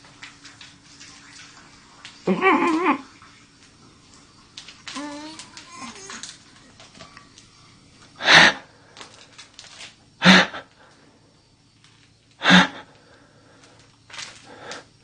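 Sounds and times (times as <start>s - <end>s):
person breathing out hard: 8.2s - 9.2s, 10.2s - 11.0s, 12.4s - 13.8s, 14.4s - 14.9s.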